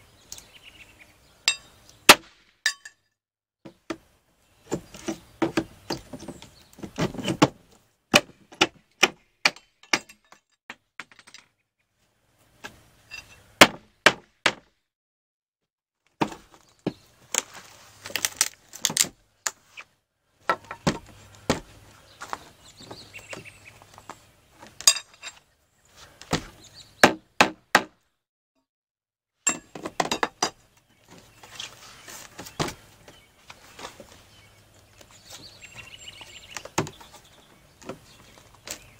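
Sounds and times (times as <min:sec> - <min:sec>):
hammer striking metal pry bar: 0:01.5 - 0:03.0, 0:09.0 - 0:10.4, 0:29.5 - 0:30.6.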